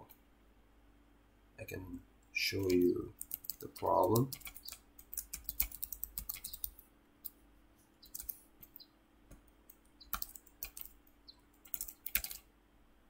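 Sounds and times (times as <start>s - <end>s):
computer keyboard typing: 2.6s - 7.4s, 8.0s - 8.8s, 9.7s - 12.4s.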